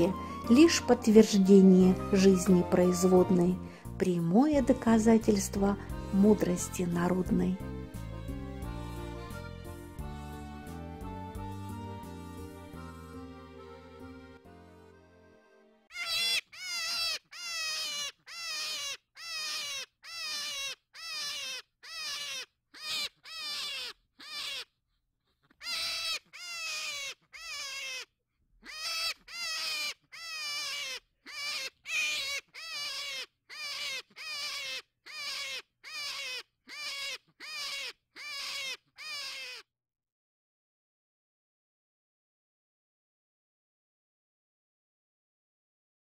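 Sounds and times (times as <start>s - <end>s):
hare squealing: 15.9s - 24.7s, 25.6s - 28.1s, 28.7s - 39.6s.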